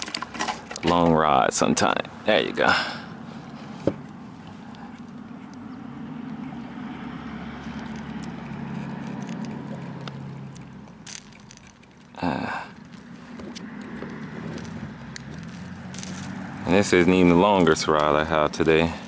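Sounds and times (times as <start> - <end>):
fishing hooks clicking and rattling: 7.6 - 19.0.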